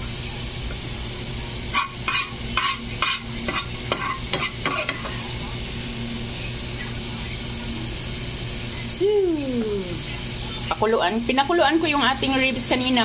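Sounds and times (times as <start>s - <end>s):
utensil scraping ceramic dish: 1.7s - 5.1s.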